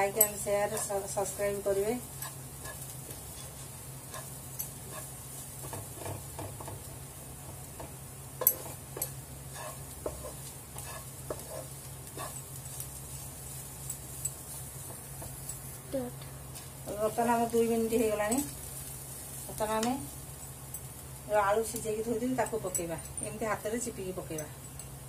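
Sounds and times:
onions sizzling: 0.0s - 25.0s
spatula scraping a pan: 2.0s - 6.9s, 7.8s - 13.6s.

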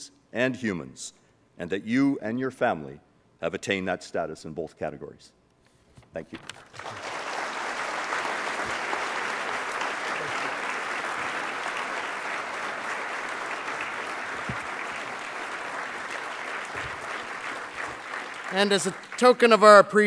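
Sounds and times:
audience applauding: 6.6s - 19.9s.

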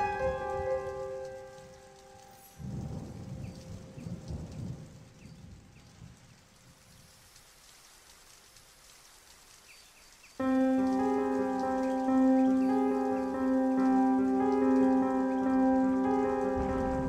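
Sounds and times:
thunder rumbling: 0.0s - 6.8s, 10.4s - 17.0s
steady rain: 0.0s - 17.0s
water dripping: 0.0s - 17.0s.

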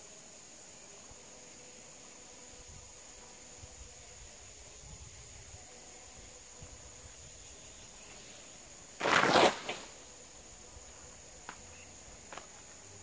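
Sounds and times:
cast net crashing on sheet: 9.0s - 9.9s.

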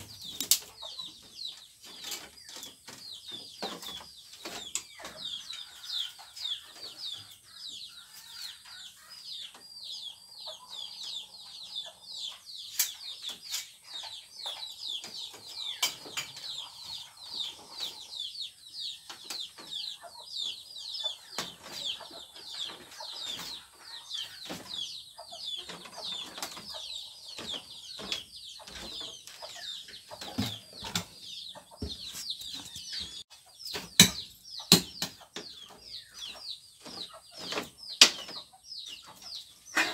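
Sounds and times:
birds chirping: 0.0s - 39.9s
sharp knocks and clicks: 33.6s - 35.8s.

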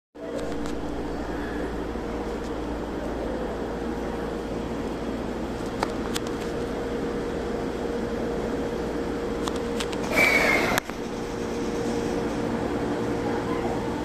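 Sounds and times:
train equipment hum: 0.2s - 14.0s
loud hiss with whistle: 10.0s - 10.8s.

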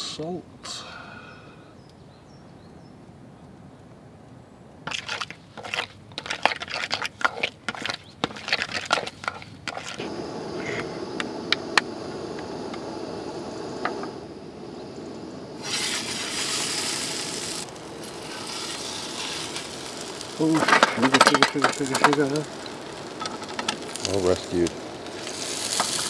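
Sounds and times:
dough sizzling in pan: 6.3s - 26.0s
gas stove burner rushing: 10.0s - 26.0s.

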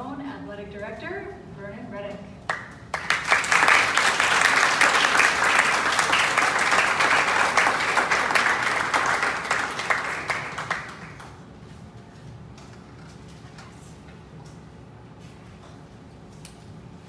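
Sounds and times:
audience applauding: 2.5s - 11.4s.

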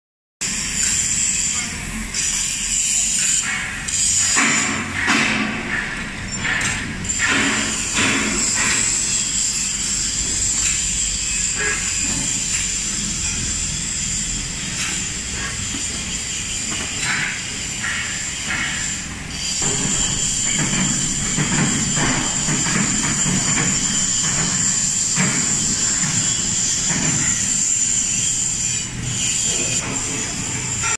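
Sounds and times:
knocks and clatter: 19.6s - 27.4s.

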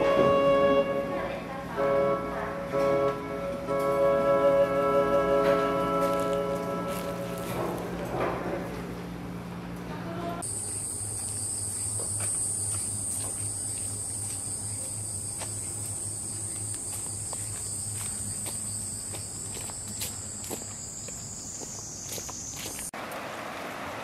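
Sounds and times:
cicadas droning: 4.0s - 7.9s, 10.4s - 22.9s
footsteps on a dirt path: 5.4s - 8.4s, 11.1s - 14.5s, 15.3s - 22.9s.

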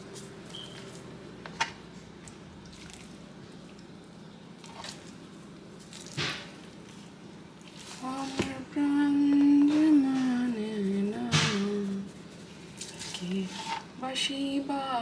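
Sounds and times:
wet squishing of raw chicken: 2.2s - 8.0s, 12.4s - 13.3s.

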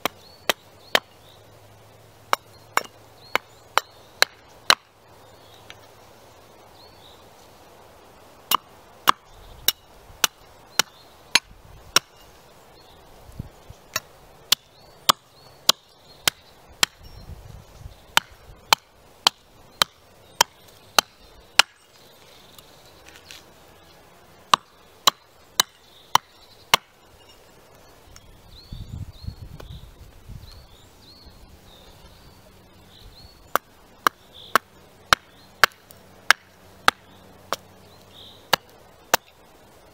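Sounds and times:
axe chopping wood: 0.0s - 1.1s, 2.3s - 4.9s, 8.5s - 12.1s, 13.9s - 17.0s, 18.1s - 21.8s, 24.5s - 27.0s, 33.5s - 37.6s.

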